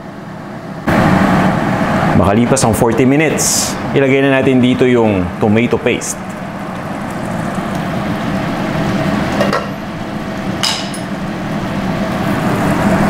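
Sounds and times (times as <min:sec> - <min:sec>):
sauce bubbling in a pot: 0:06.3 - 0:10.6.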